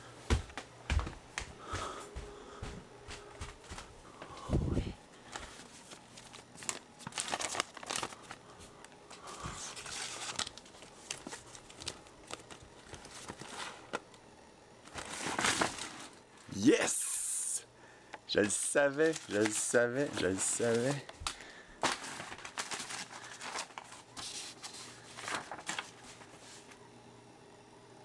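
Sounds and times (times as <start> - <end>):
papers rustling: 5.2 - 14.2, 14.8 - 16.2, 18.3 - 26.8.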